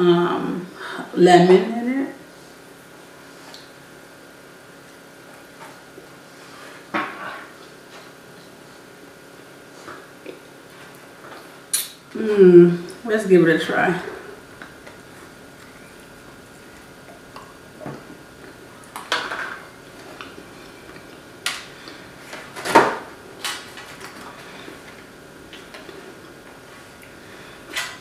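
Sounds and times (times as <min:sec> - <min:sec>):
person chewing donut: 0:10.0 - 0:11.1, 0:19.8 - 0:22.3.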